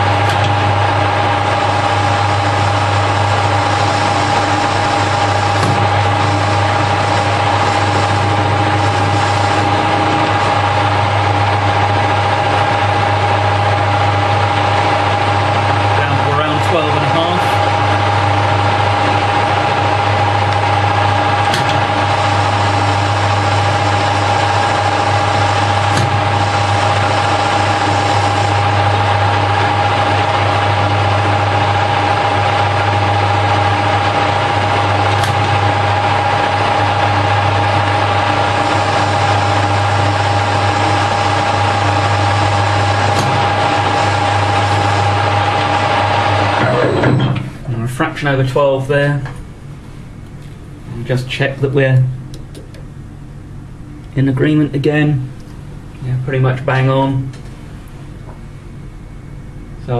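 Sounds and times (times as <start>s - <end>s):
metal lathe whine: 0.0s - 47.6s
low motor hum: 0.0s - 48.0s.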